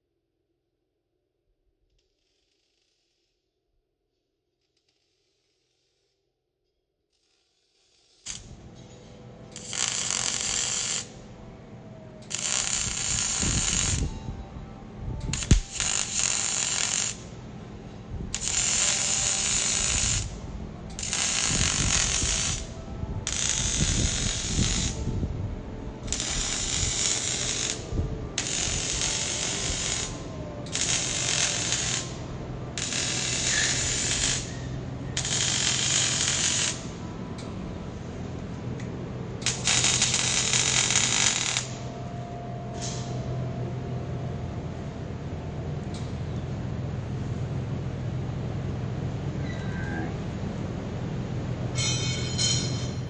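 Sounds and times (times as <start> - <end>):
mig welder crackling: 8.1 - 8.6, 9.5 - 11.2, 12.2 - 14.2, 15.2 - 17.4, 18.3 - 25.1, 26.0 - 37.0, 38.8 - 41.9.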